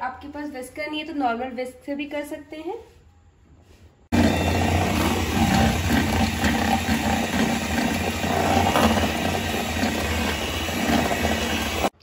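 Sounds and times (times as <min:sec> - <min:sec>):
electric hand mixer whisking: 0:04.1 - 0:12.0.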